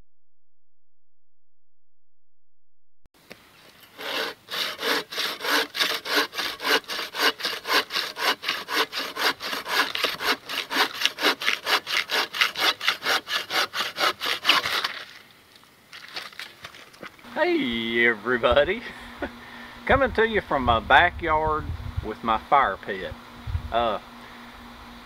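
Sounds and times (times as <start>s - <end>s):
hand saw cutting log: 3.8s - 15.2s.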